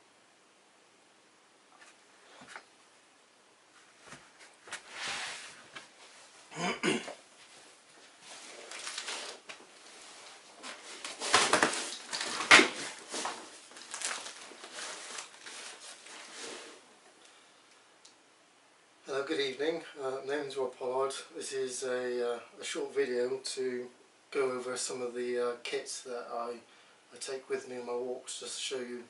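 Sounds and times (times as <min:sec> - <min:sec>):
fabric and bedding rustling: 0:03.7 - 0:06.5, 0:07.3 - 0:16.9.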